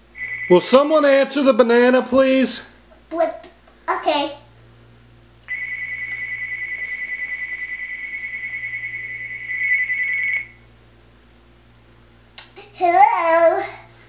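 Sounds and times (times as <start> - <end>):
electronic telephone trill: 0.2 - 0.8, 5.5 - 10.5.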